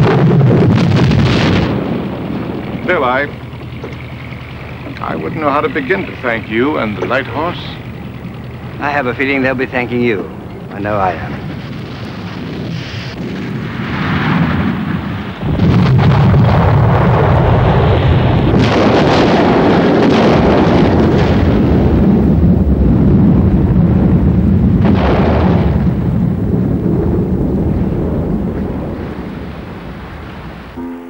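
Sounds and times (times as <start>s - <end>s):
loud rumbling roar: 0.0s - 30.8s
hissing surges: 0.7s - 19.7s.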